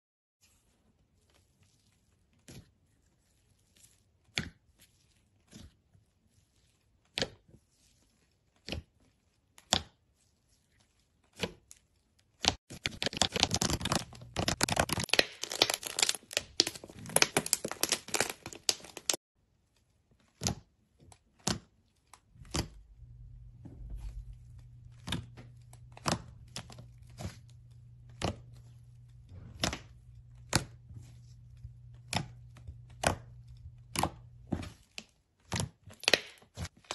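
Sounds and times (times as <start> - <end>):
fingers squishing whipped foam: 12.9 - 19.2
foam crackling and tearing: 13.0 - 19.2.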